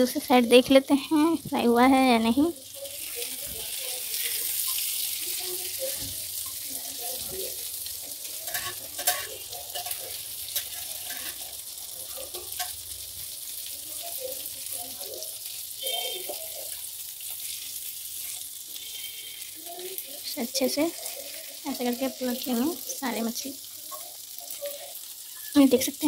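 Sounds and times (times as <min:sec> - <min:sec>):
fish frying in hot oil: 0:00.0 - 0:26.0
spatula scraping and tapping pan: 0:08.2 - 0:12.8, 0:16.0 - 0:18.5.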